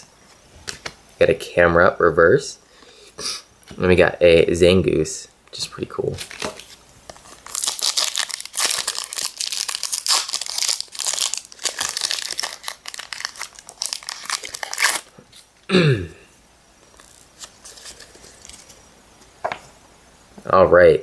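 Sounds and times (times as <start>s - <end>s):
foil wrapper crinkling and tearing: 6.1s - 15.5s, 16.9s - 18.8s.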